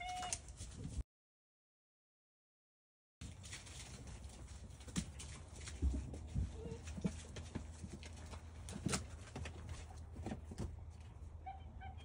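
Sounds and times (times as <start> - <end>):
puppy paws scrabbling: 3.2 - 11.3.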